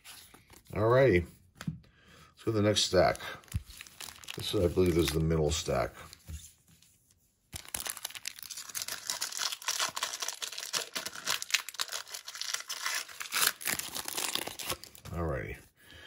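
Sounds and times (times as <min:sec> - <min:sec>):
foil wrapper tearing and crinkling: 0:03.5 - 0:05.2, 0:07.5 - 0:15.0.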